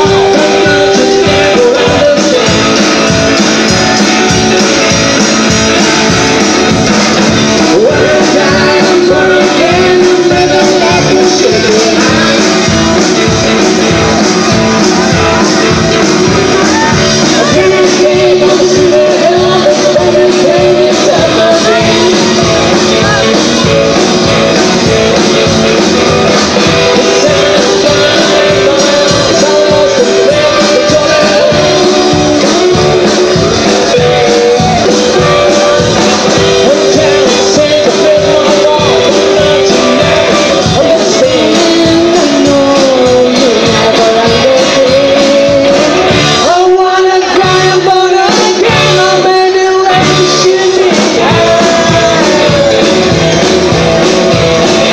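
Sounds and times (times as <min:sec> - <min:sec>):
rock and roll band playing: 0:00.0 - 0:54.9
woman singing: 0:16.2 - 0:23.7.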